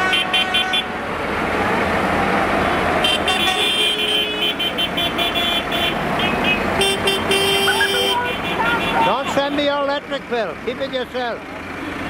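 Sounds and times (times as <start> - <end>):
horns tooting: 0.0 - 1.0, 2.6 - 10.0
diesel tractor engines: 0.0 - 12.0.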